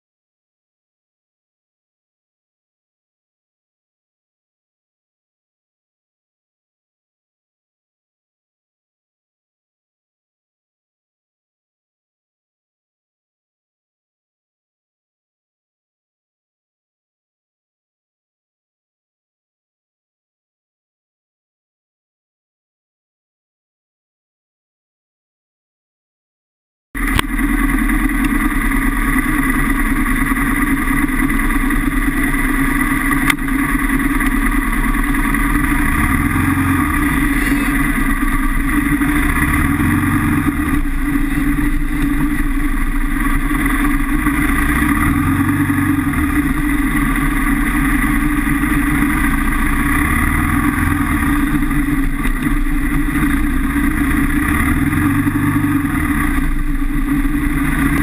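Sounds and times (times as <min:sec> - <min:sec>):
motorcycle engine running: 0:27.0 - 0:58.0.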